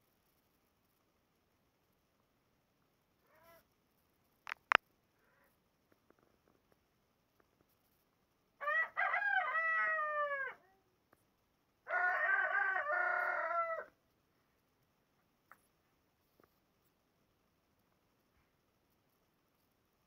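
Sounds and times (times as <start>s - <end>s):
rooster crowing: 8.6s - 10.7s, 11.8s - 14.0s.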